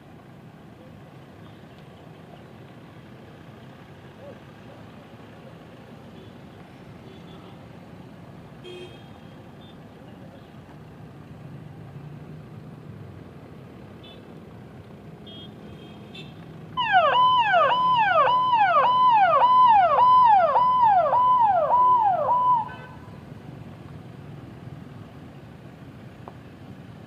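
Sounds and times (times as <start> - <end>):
faint vehicle noise: 0.0 - 27.0
electronic yelp siren: 16.8 - 23.0.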